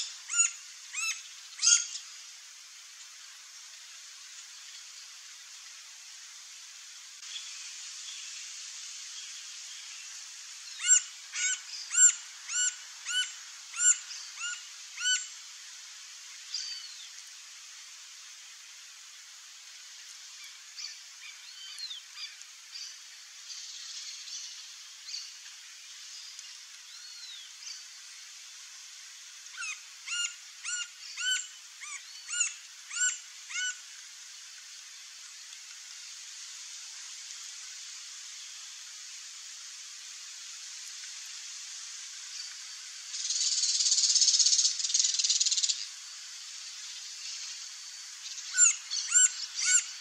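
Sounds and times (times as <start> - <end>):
background hiss: 0.0 - 50.0
woodpecker calling: 10.8 - 15.2, 48.6 - 49.9.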